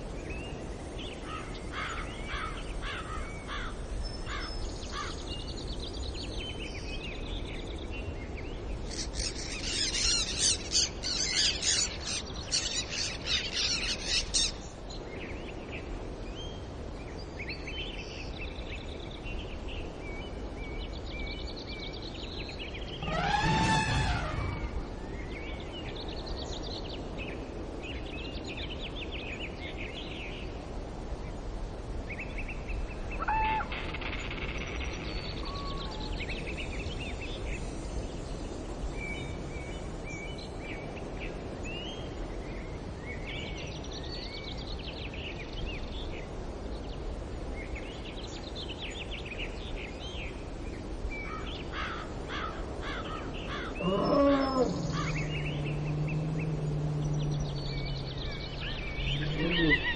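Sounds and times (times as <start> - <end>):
outdoor background hiss: 0.0 - 59.9
birds chirping and trilling: 0.3 - 16.6, 17.2 - 30.4, 46.9 - 59.9
bird call falling in pitch: 23.0 - 24.8.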